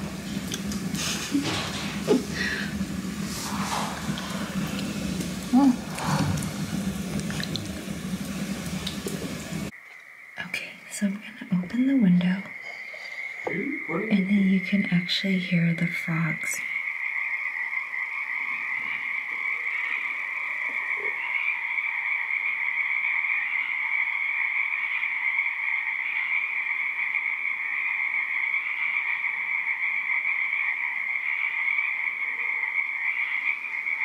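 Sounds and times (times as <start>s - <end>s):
frog chorus: 9.7s - 34.0s.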